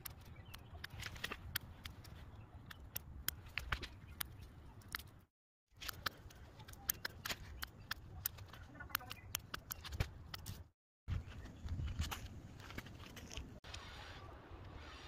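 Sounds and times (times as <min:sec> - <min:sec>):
scissors snipping leaves: 0:05.8 - 0:10.6.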